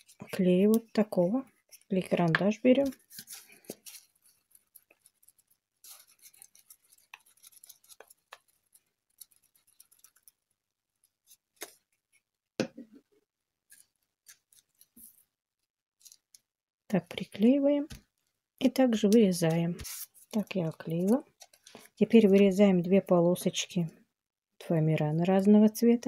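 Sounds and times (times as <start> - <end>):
glue stick scratching on cardboard: 2.9 - 10.4.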